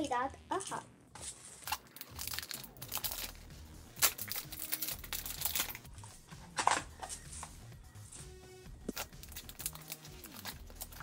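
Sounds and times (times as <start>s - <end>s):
plastic wrapper crinkling: 1.4s - 5.8s, 8.9s - 11.0s
plastic wrapper ripping: 1.6s - 5.8s, 8.9s - 11.0s.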